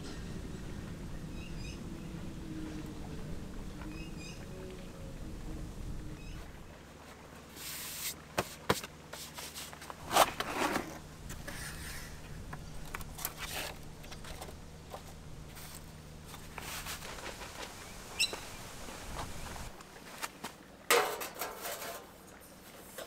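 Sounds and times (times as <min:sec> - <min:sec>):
handling clicks and scrapes: 0:07.5 - 0:18.4, 0:19.1 - 0:23.0.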